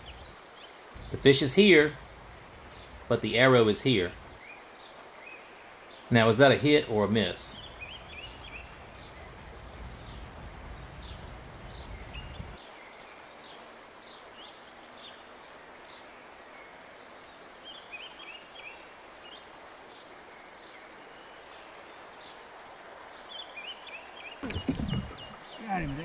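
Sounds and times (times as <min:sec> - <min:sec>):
birds chirping and singing: 0:00.0 - 0:05.4, 0:06.0 - 0:13.0, 0:22.0 - 0:26.0
faint outdoor hiss: 0:00.0 - 0:26.0.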